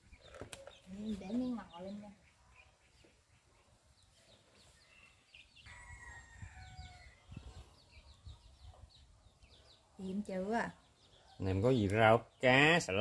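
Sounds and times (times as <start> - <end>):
small birds chirping: 0.0 - 13.0
rooster crowing: 5.6 - 7.3.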